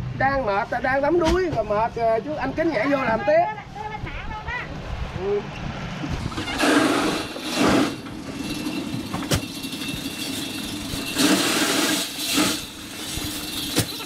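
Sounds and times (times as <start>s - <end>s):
plastic sacks rustling: 6.3s - 14.0s.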